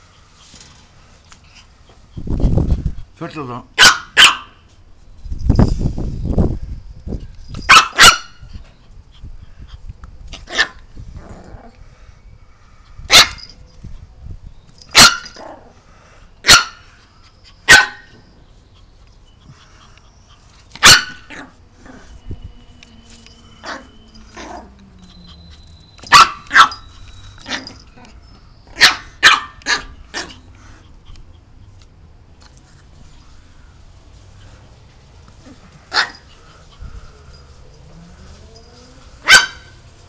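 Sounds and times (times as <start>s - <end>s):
small dog barking: 3.8s - 4.6s, 7.7s - 8.4s, 10.5s - 10.8s, 13.1s - 13.4s, 14.9s - 15.6s, 16.4s - 17.0s, 17.7s - 18.2s, 20.8s - 22.0s, 26.0s - 26.8s, 28.7s - 30.4s, 35.4s - 36.3s, 39.2s - 39.8s.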